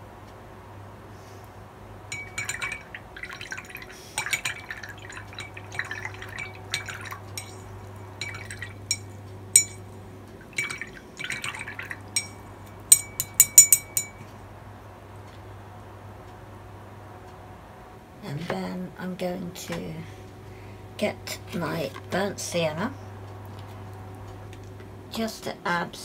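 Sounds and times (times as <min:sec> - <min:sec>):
brush clinking against jar: 0:02.1 - 0:14.3.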